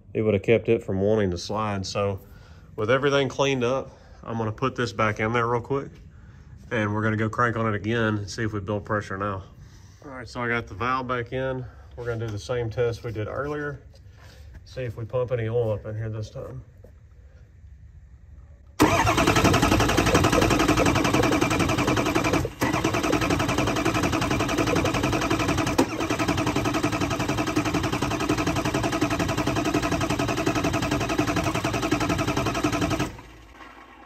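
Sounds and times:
diesel engine cranking on starter: 18.8 - 34.0.

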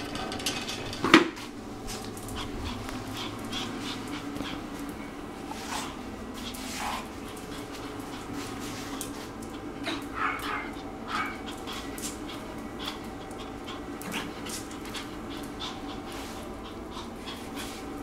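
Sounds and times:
steady low hum: 0.0 - 18.0
puppy whimpering: 9.8 - 18.0.

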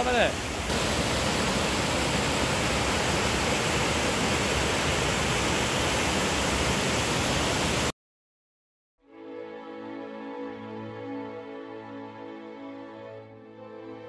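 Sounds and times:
waterfall roaring: 0.0 - 7.9.

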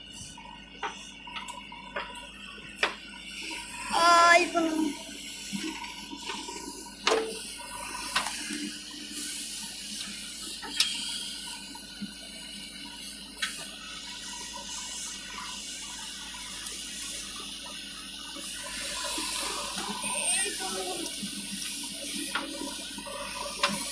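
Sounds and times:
backhoe diesel engine and hydraulics: 0.0 - 23.9.

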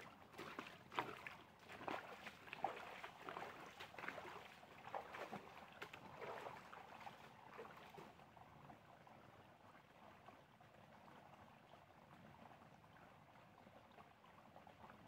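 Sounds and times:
boots wading through stream: 0.0 - 8.4.

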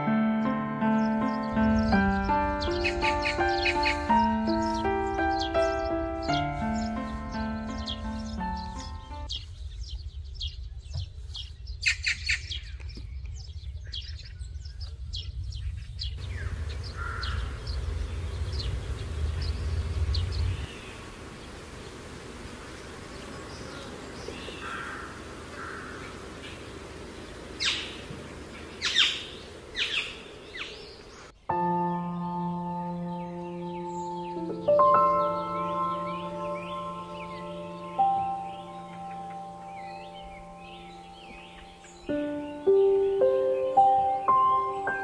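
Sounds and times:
birds chirping: 0.0 - 45.0
low rumble: 12.6 - 23.1.

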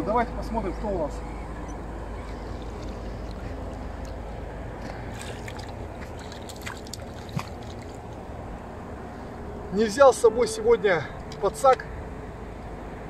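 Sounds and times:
steady low rumble: 0.0 - 13.0
fish splashing at water surface: 4.9 - 8.2.

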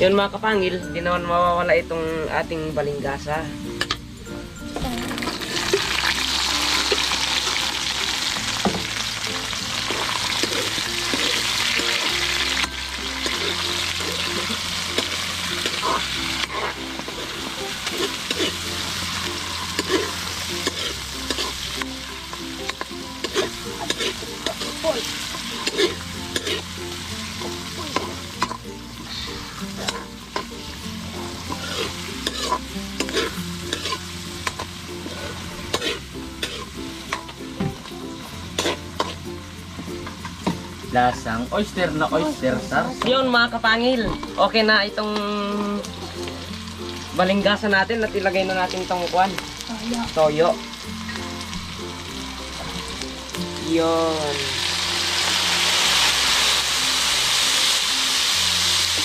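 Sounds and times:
food sizzling in hot oil: 0.0 - 59.0
spatula scraping a pan: 9.8 - 21.8, 22.7 - 26.7, 27.4 - 30.6, 31.3 - 37.3, 38.5 - 39.2.

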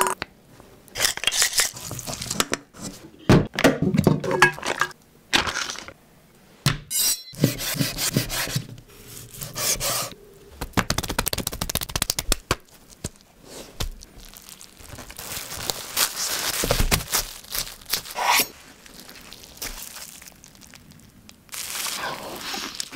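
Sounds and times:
plastic bag rustling: 12.6 - 22.9.

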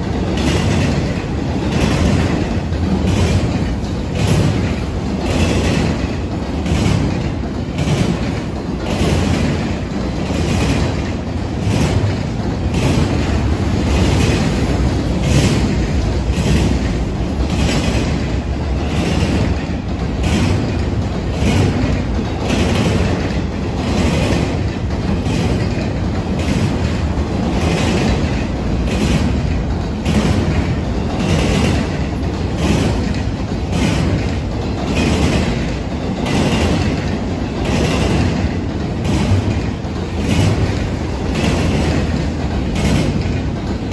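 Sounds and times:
freight train wheels rumbling on rail: 0.0 - 43.9
train wheel clacks: 0.0 - 43.9.

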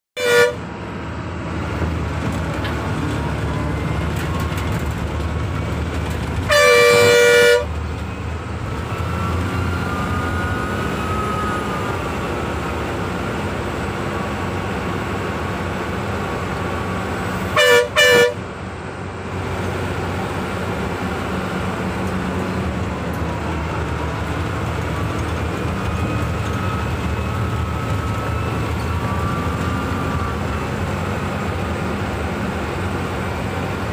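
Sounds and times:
bus horn: 0.2 - 0.7, 6.4 - 7.8, 17.2 - 18.5
bus diesel engine running: 0.2 - 33.9.

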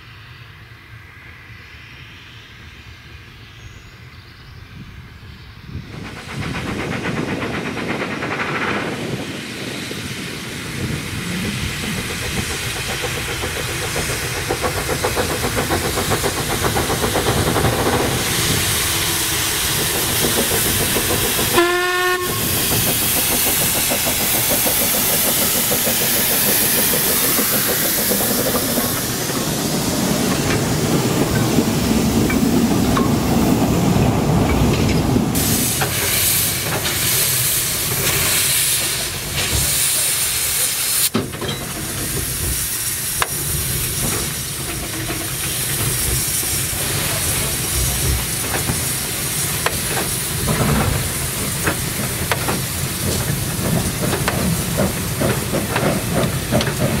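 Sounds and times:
steam locomotive exhaust beats: 0.0 - 57.0
steam hissing: 0.3 - 57.0
steam whistle toot: 21.5 - 22.6.

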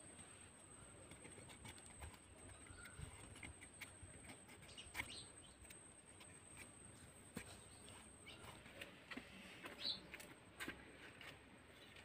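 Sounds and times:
faint bird chirps: 2.4 - 5.8, 7.4 - 8.7, 9.7 - 10.1.

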